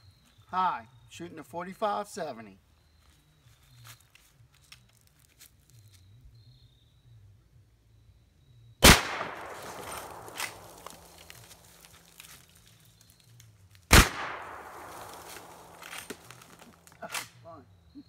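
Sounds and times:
sharp rifle click: 0:08.8 - 0:11.3, 0:13.9 - 0:17.3
rifle shot with echo: 0:08.8 - 0:11.6, 0:13.9 - 0:16.6.

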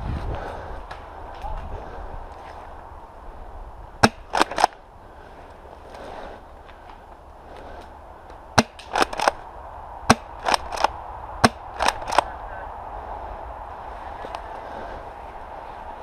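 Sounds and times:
airsoft gun cracks: 0:04.0 - 0:04.8, 0:08.6 - 0:09.4, 0:10.1 - 0:12.3.

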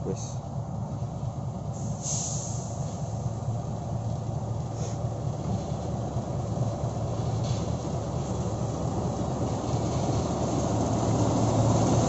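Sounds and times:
diesel machinery rumbling: 0:00.0 - 0:12.0
short hisses: 0:01.8 - 0:02.8, 0:04.7 - 0:05.0.

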